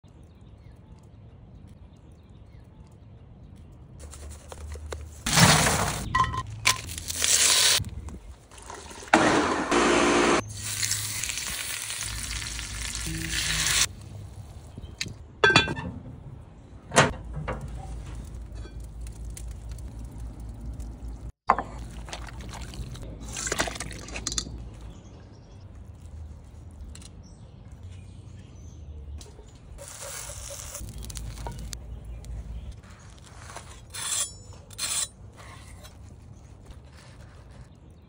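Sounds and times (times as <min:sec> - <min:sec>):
food sizzling: 0:09.7 - 0:13.9.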